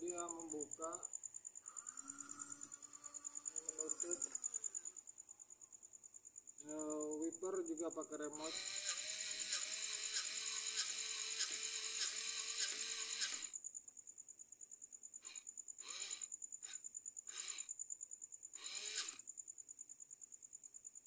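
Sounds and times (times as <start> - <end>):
crickets chirring: 0.0 - 21.0
small electric motor whirring clicking: 8.4 - 13.6, 15.2 - 17.7, 18.6 - 19.2.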